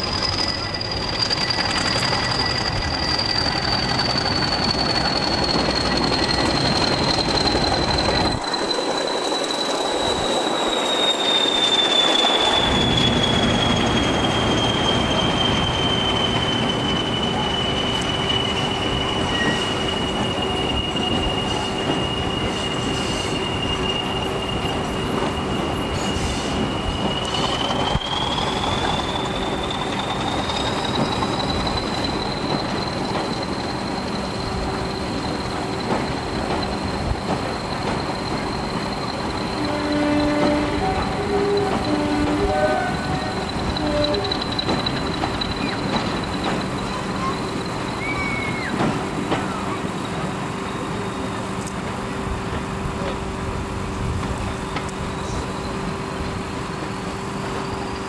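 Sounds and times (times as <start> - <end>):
diesel train rumbling: 0.0 - 58.0
high train whistle: 10.7 - 31.8, 37.6 - 50.0.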